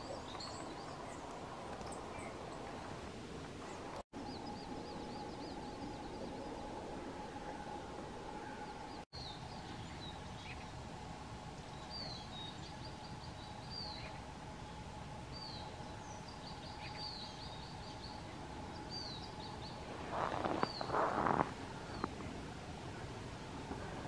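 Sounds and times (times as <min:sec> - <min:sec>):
faint steady hum: 0:00.0 - 0:24.0
songbirds chirping: 0:00.0 - 0:24.0
rustling noise: 0:19.8 - 0:22.3.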